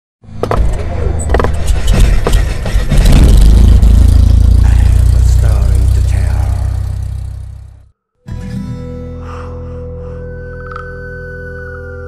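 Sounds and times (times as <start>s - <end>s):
deep steady rumble: 0.8s - 7.9s
sharp hits: 1.5s - 7.6s.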